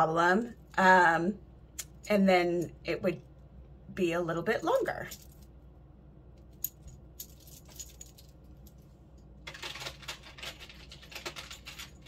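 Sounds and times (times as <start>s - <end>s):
metal bead necklace clinking: 6.5s - 8.8s.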